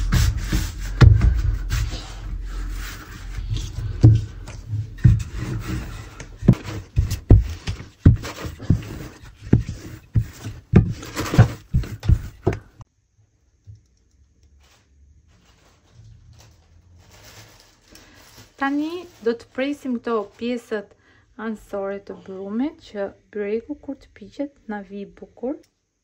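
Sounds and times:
hands rubbing dough: 0.0s - 12.8s.

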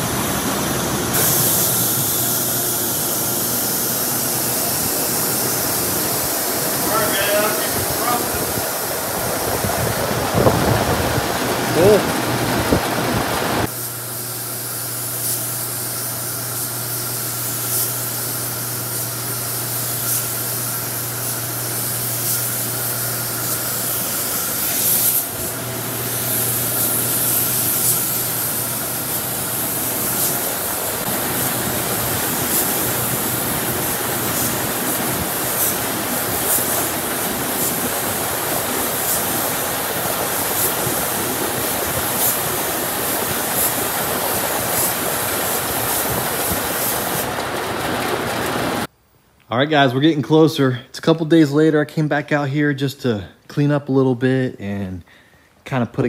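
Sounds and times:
paint spray gun hissing: 1.1s - 9.6s, 13.6s - 47.5s.

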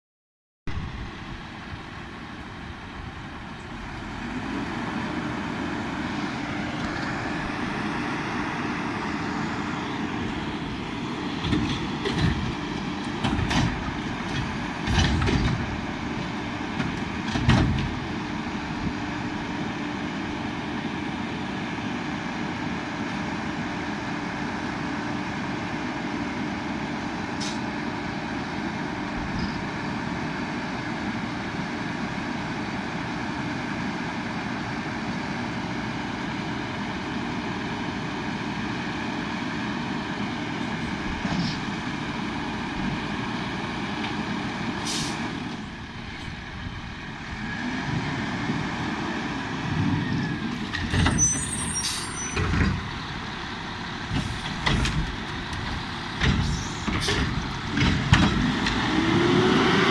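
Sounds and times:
garbage truck engine hum: 0.7s - 59.9s
loud clanks and bangs: 11.4s - 15.8s, 16.8s - 18.1s, 54.0s - 58.8s.

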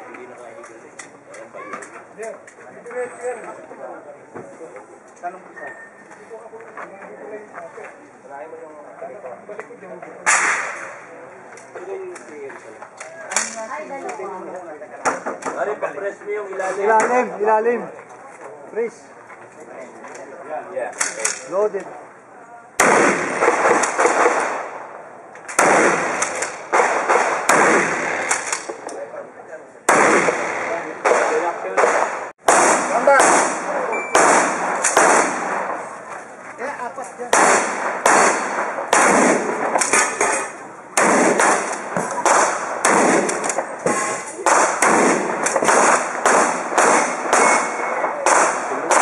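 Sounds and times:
shotgun shots: 10.2s - 11.0s, 22.8s - 24.8s, 25.5s - 28.8s, 29.9s - 35.9s, 37.3s - 49.0s.

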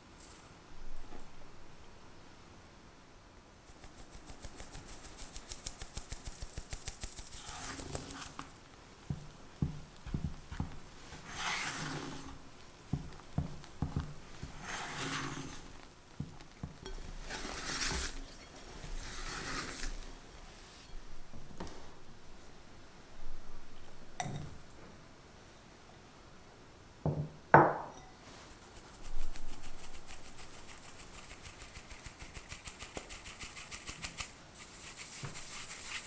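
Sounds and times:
spatula scraping bowl: 7.3s - 8.5s, 10.0s - 20.0s.

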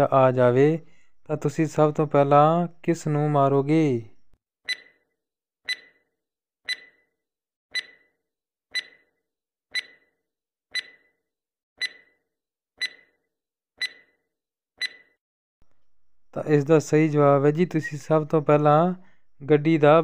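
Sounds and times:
timer ticks with ringing tone: 4.7s - 5.0s, 5.7s - 6.1s, 6.7s - 7.1s, 7.7s - 11.2s, 11.8s - 12.2s, 12.8s - 13.2s, 13.8s - 14.2s, 14.8s - 15.2s.

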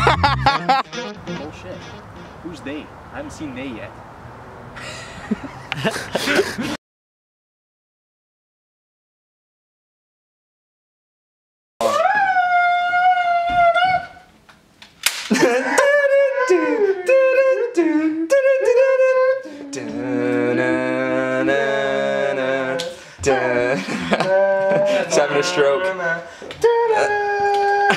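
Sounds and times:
person humming a tune: 0.0s - 2.6s, 15.6s - 27.9s.

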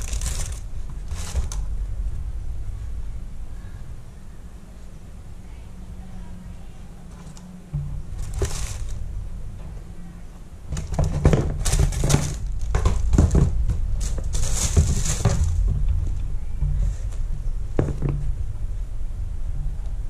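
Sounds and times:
tissue paper rustling: 0.0s - 1.6s, 8.2s - 9.0s, 14.0s - 15.7s
low steady hum: 0.0s - 20.0s.

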